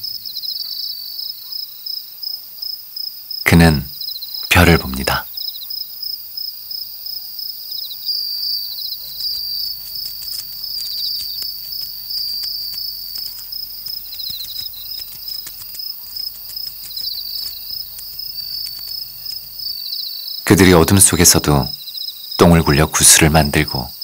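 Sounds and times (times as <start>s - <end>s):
crickets chirping: 0.0s - 24.0s
high-pitched insect trill: 4.0s - 20.5s
faint clicks: 9.0s - 19.7s.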